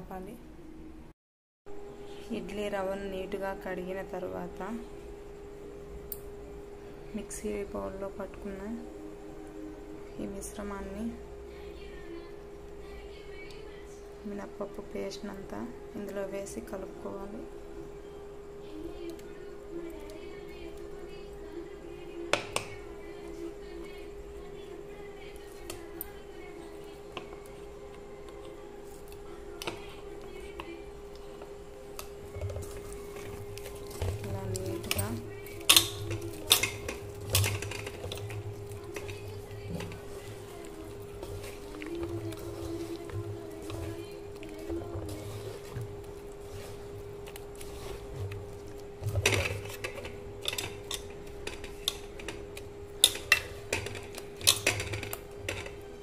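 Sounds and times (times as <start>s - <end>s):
steady hum: 0.0s - 56.0s
wet batter stirring by hand: 14.6s - 56.0s
clinks against metal vessel: 53.0s - 55.8s.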